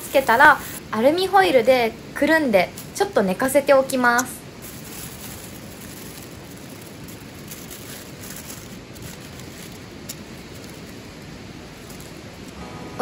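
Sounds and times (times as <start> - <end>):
aluminium foil crinkling: 0.0 - 1.6, 2.5 - 12.6
river flowing: 4.4 - 13.0.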